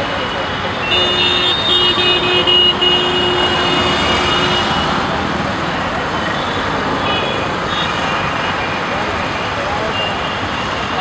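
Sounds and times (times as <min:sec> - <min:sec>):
dense road traffic: 0:00.0 - 0:11.0.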